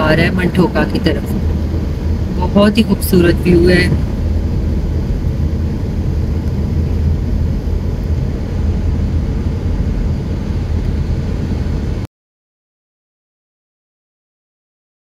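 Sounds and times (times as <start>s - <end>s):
car engine and tyres rumbling: 0.0s - 12.1s.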